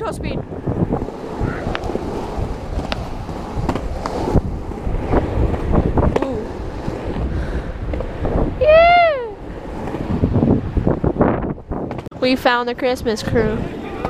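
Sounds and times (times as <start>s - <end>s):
skateboard wheels rolling on pavement: 0.0s - 14.0s
wind buffeting microphone: 0.0s - 14.0s
loud high cry: 8.6s - 9.4s.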